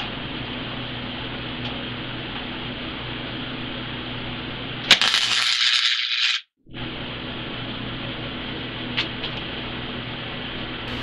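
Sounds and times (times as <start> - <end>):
welding arc crackling and hissing: 4.9 - 6.4
steady hum: 6.7 - 11.0.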